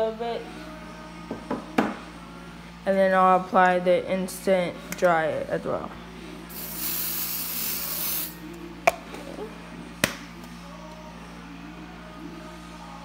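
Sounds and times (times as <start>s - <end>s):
aerosol spray hissing: 6.5s - 8.4s.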